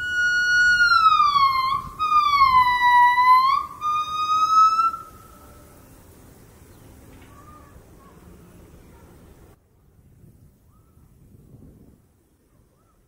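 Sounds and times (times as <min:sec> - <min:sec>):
gibbon singing whistled notes: 0:00.0 - 0:05.5.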